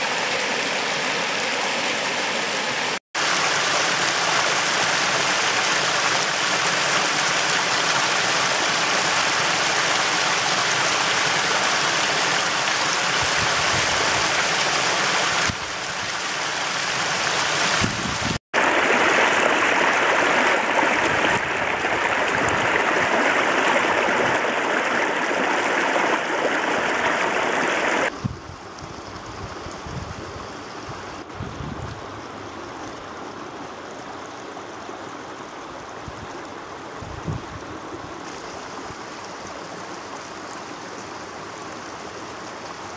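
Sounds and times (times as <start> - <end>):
stream rushing over rocks: 0.0 - 28.2, 32.0 - 42.9.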